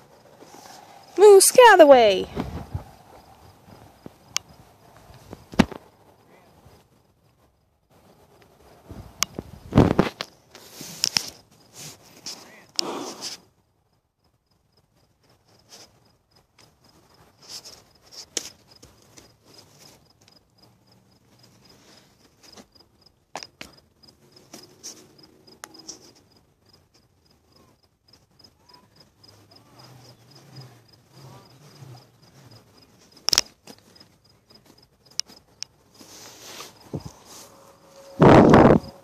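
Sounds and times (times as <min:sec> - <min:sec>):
insect chirping: 0:00.0 - 0:39.0
knocks and rubbing on microphone: 0:08.9 - 0:10.3.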